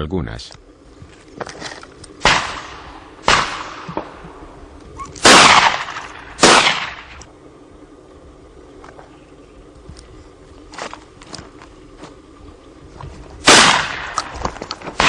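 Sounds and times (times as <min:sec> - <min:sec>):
distant shots: 0:02.2 - 0:04.2, 0:05.2 - 0:07.2, 0:13.4 - 0:15.0
shotgun shots echoing: 0:02.2 - 0:04.2, 0:05.2 - 0:07.2, 0:13.4 - 0:15.0.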